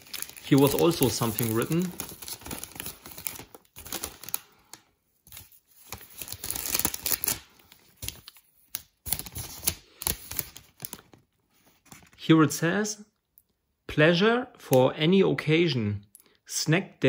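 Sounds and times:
plastic snack bag crinkling: 0.0 - 11.3.

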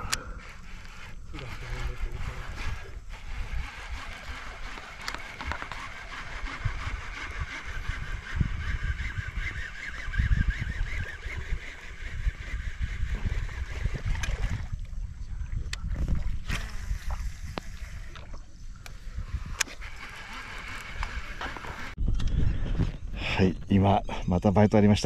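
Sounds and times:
water lapping against boat hull: 0.0 - 8.1, 11.0 - 22.0.

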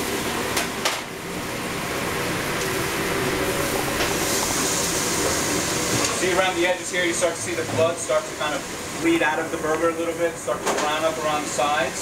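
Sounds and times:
exhaust hood fan rushing: 0.0 - 12.0
gas grill: 0.0 - 12.0.

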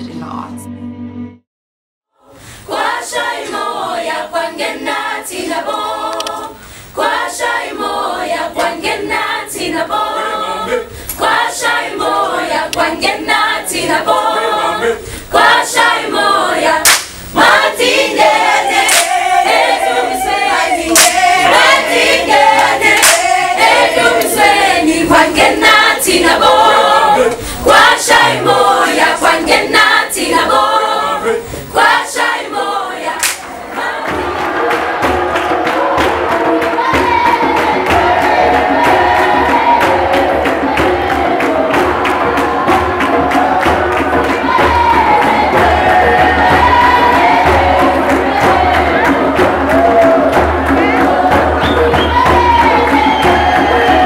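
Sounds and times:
choir singing unaccompanied: 2.2 - 54.0
dense music with quick percussion: 15.3 - 29.8, 33.2 - 54.0
sharp hand claps: 16.8 - 17.2, 18.8 - 19.4, 20.9 - 21.5, 22.6 - 23.4, 33.2 - 33.6.

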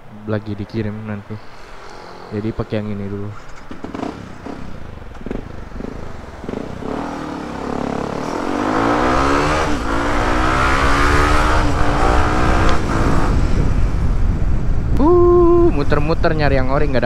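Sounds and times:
motorcycle engine accelerating: 3.5 - 14.2
wind noise on microphone: 8.3 - 17.0.

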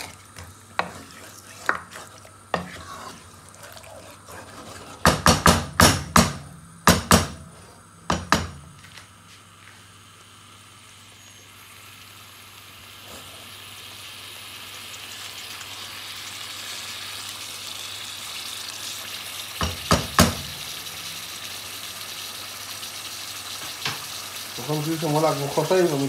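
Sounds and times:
wooden spatula stirring: 0.0 - 5.4
chicken sizzling in oil: 0.0 - 6.1, 9.9 - 26.0.

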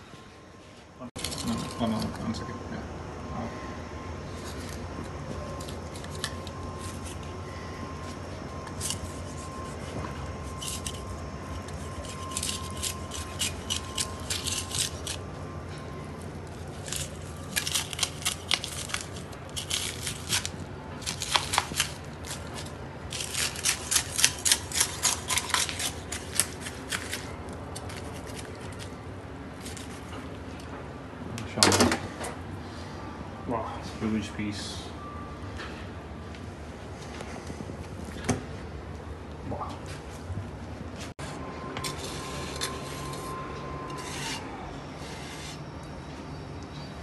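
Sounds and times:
knife cutting and scraping fish: 5.5 - 15.4, 16.2 - 30.2, 41.2 - 45.7.

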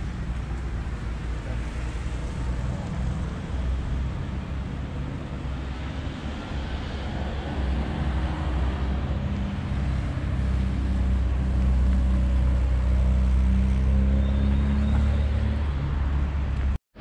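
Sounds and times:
road noise rumble: 0.0 - 17.0.

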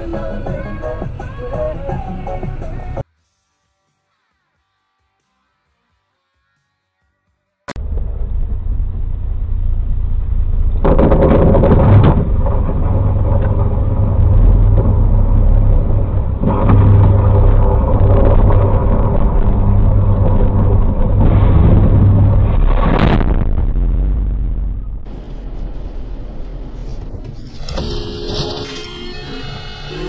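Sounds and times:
deep vehicle rumble: 7.8 - 27.6.

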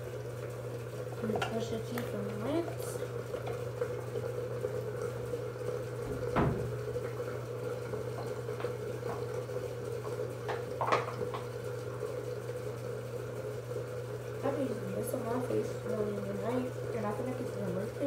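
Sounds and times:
objects knocking at a sink: 6.0 - 6.8, 10.5 - 11.5
thump: 6.1 - 6.7.

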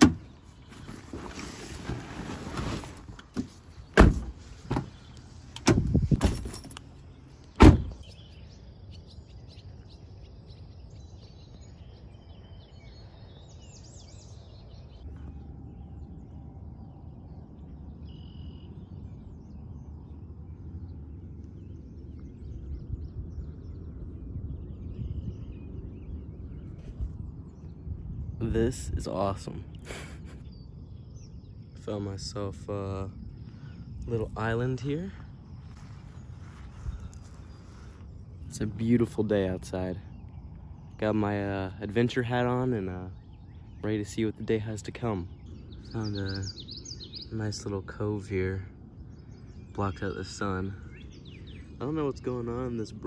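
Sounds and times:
low outdoor rumble: 0.0 - 53.0
car door knocks and thuds: 3.3 - 5.0, 5.6 - 6.6, 7.6 - 8.0
bird chirps: 7.0 - 53.0.

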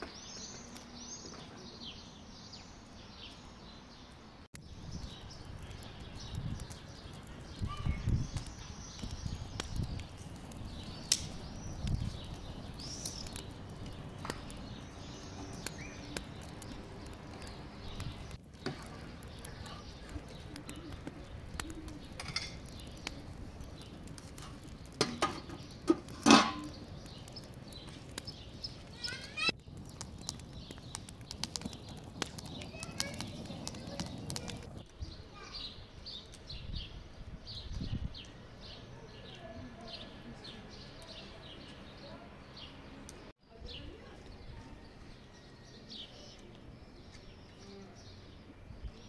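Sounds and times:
wood fire crackling: 0.0 - 43.4
birds chirping: 0.0 - 49.0
metal lid clank: 25.0 - 26.7.

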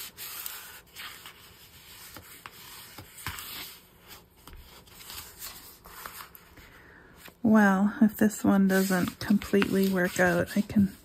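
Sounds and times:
hands rubbing cardstock: 8.5 - 11.0.

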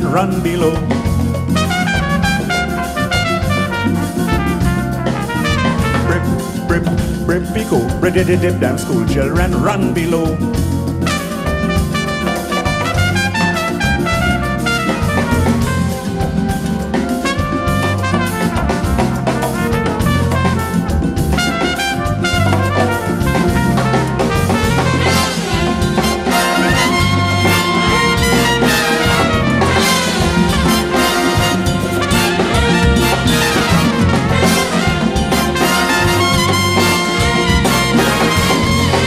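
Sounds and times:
big band calypso music: 0.0 - 39.0
trumpet solo: 1.5 - 7.6, 11.0 - 39.0.

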